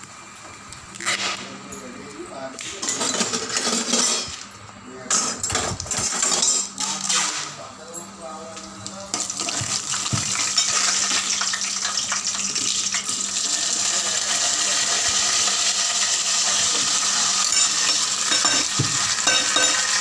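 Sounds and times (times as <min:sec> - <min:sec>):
nuts frying in oil: 0:08.5 - 0:20.0.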